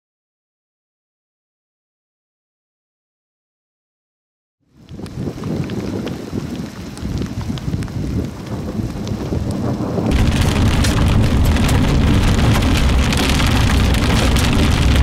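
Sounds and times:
wind rumbling on microphone: 0:04.7 - 0:15.0
heavy rain on vehicle roof: 0:04.8 - 0:15.0
raindrop ticks: 0:04.8 - 0:15.0.

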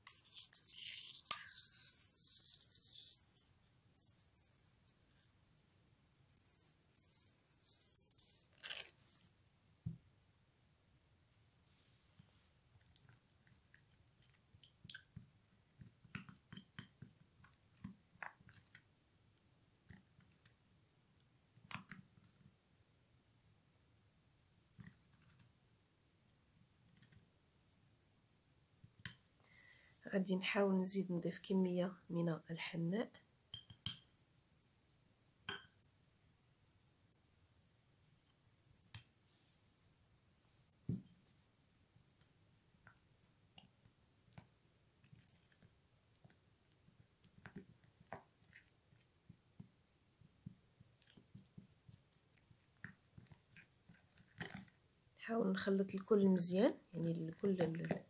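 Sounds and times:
spoon stirring paste in glass bowl: 0:33.5 - 0:34.1.

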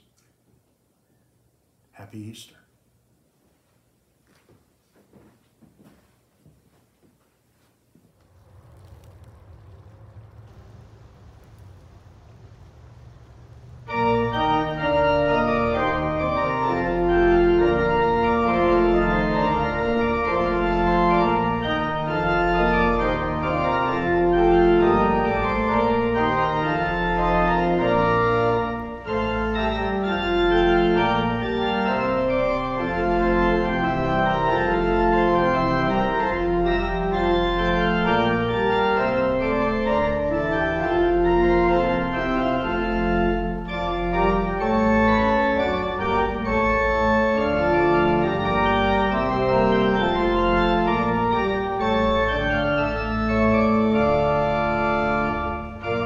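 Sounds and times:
church organ chords: 0:12.7 - 0:56.0.

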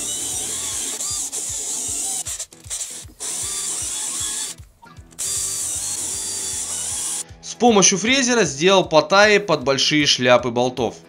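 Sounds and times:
cordless drill boring through wood: 0:00.0 - 0:07.2.

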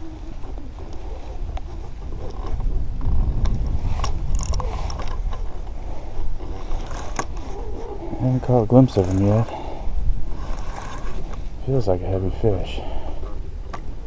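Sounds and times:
fishing reel cranking: 0:06.7 - 0:07.3, 0:09.0 - 0:09.6, 0:10.4 - 0:11.2.

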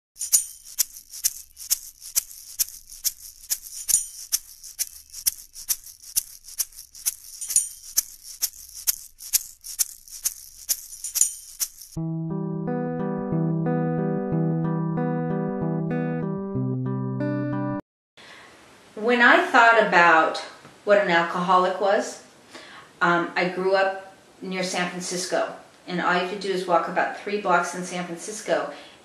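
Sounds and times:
shaker playing even rhythm: 0:00.2 - 0:12.0
acoustic guitar: 0:12.0 - 0:17.8.

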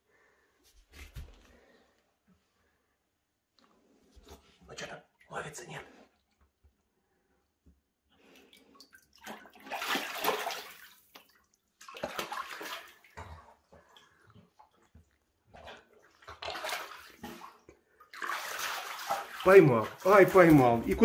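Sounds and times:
shallow water splashing: 0:08.2 - 0:21.0.

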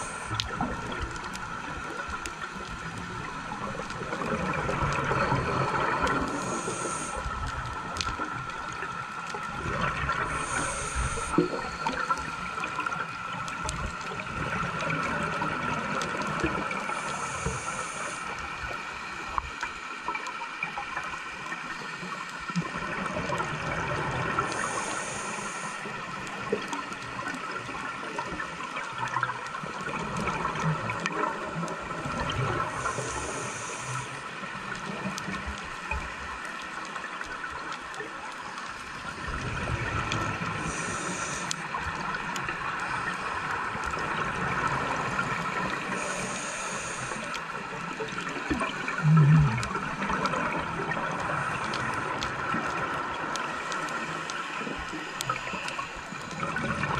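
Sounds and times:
regulator breathing hiss: 0:00.0 - 0:00.9, 0:05.1 - 0:07.9, 0:10.2 - 0:13.2, 0:16.8 - 0:20.0, 0:24.4 - 0:26.4, 0:32.6 - 0:35.0, 0:40.3 - 0:43.7, 0:44.6 - 0:47.8, 0:53.2 - 0:56.7
gurgling exhaled bubbles: 0:00.0 - 0:19.2, 0:20.2 - 0:56.9
faint whine: 0:00.0 - 0:29.2, 0:30.0 - 0:56.9.

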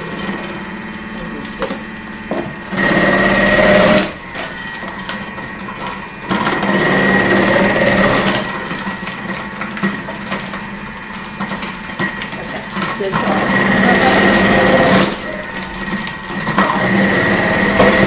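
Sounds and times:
food processor motor whine: 0:00.0 - 0:18.0.

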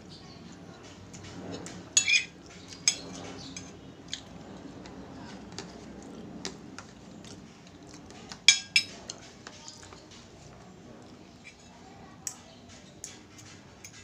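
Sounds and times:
cutlery clinking on a ceramic plate: 0:02.0 - 0:04.3, 0:08.4 - 0:09.9.

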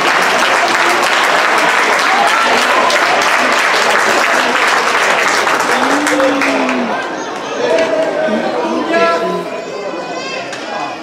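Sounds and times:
audience applauding: 0:00.0 - 0:07.4
faint voices: 0:00.0 - 0:11.0.

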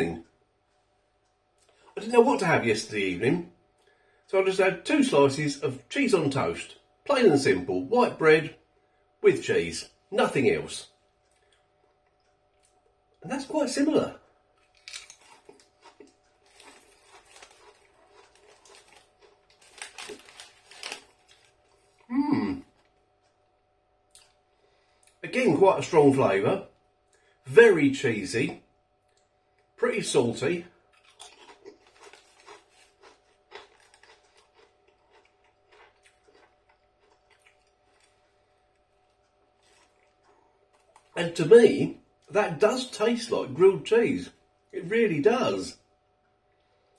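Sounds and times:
crisp being chewed: 0:14.6 - 0:23.5, 0:30.9 - 0:41.2
crisp packet rustling: 0:14.7 - 0:22.1, 0:31.2 - 0:35.9.

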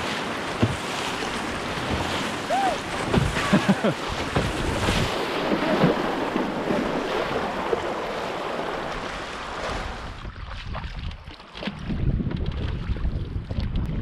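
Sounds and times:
river rapids rushing: 0:01.0 - 0:05.4
wind buffeting microphone: 0:09.9 - 0:14.0.

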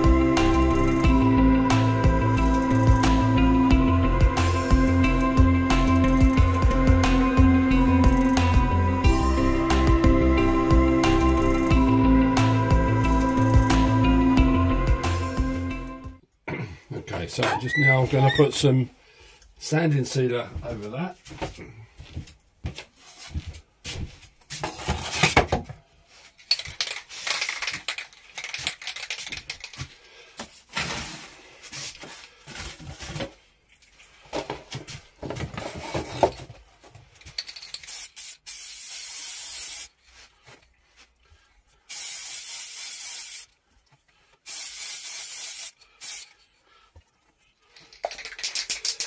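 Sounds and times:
cardboard rustling and knocking: 0:34.3 - 0:37.1
aerosol can spraying: 0:37.8 - 0:40.0, 0:41.9 - 0:43.6, 0:44.4 - 0:46.4.

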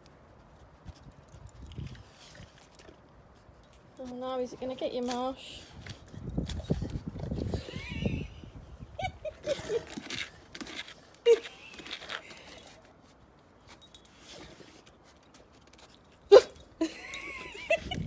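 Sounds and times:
faint rustles and clicks: 0:09.4 - 0:18.0.

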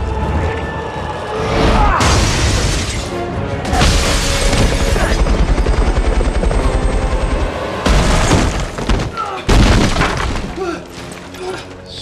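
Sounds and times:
film music: 0:00.0 - 0:12.0
helicopter rotor chopping: 0:04.8 - 0:07.8.

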